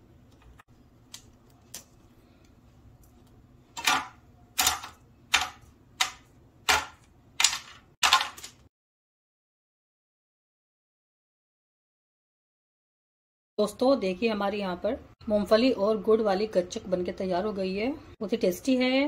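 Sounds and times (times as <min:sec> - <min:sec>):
brittle snapping with crunchy cracks: 0:03.8 - 0:08.5.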